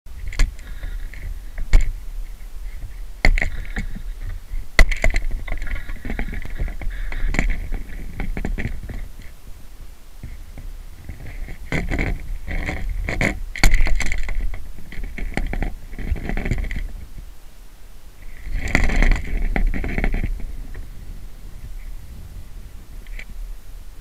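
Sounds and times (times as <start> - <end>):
low rumble of wind: 0.1 - 24.0
sharp knocks and scrapes: 0.2 - 9.4, 10.2 - 17.3, 18.2 - 20.8.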